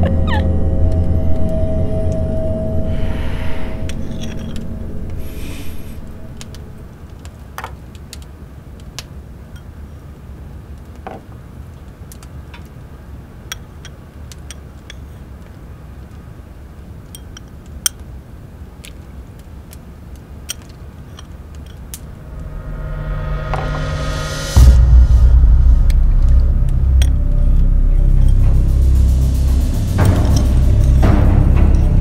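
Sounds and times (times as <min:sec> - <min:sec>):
low rumble: 0:00.0 - 0:07.4, 0:21.9 - 0:32.0.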